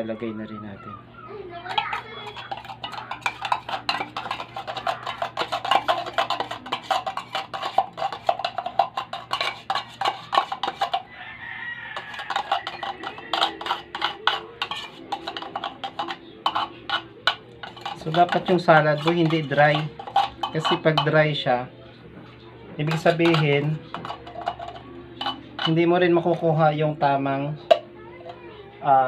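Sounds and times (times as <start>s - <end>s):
spoon clicking and scraping plastic: 1.7s - 11.1s, 11.8s - 21.3s, 22.8s - 26.5s.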